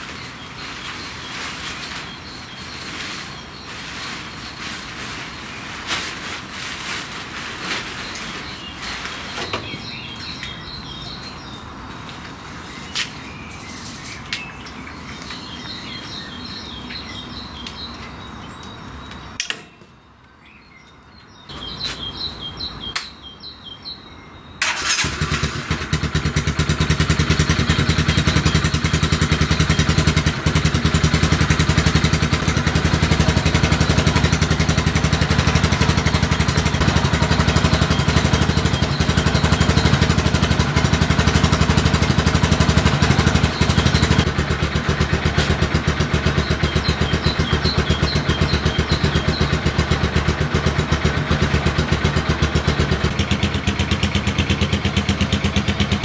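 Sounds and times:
birds singing trills: 0.0s - 25.0s, 25.8s - 53.2s
outdoor background noise: 0.0s - 56.0s
engine running with rapid pulse: 24.6s - 56.0s.

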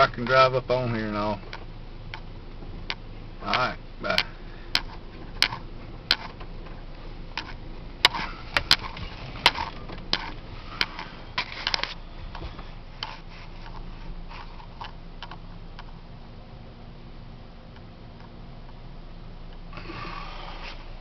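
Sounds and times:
pickup truck rumble: 0.0s - 21.0s
sharp clicks and crunches: 1.4s - 16.0s.

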